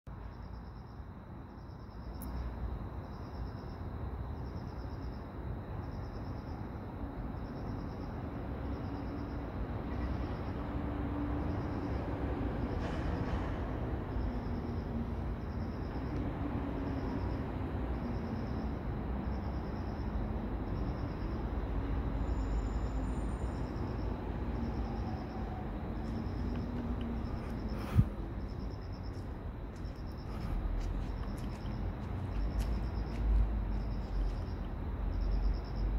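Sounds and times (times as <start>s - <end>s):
cricket chirping: 0.1s - 35.9s
steady low rumble: 11.4s - 35.9s.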